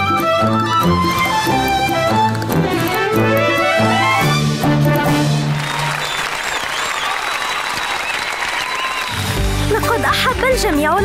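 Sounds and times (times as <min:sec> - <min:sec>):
violin melody: 0:00.0 - 0:05.6
instrumental backing music: 0:00.0 - 0:05.9, 0:09.1 - 0:11.0.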